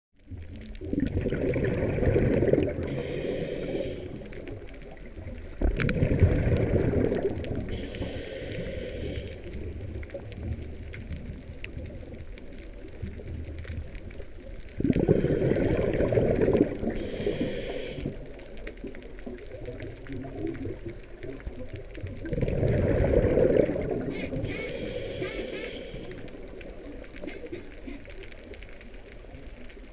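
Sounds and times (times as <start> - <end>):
bubbling exhalations: 0.8 - 4.2, 5.6 - 8.1, 14.8 - 18.2, 22.1 - 28.1
hissing regulator inhalation: 2.3 - 4.4, 7.7 - 9.7, 14.8 - 18.3, 23.0 - 26.5.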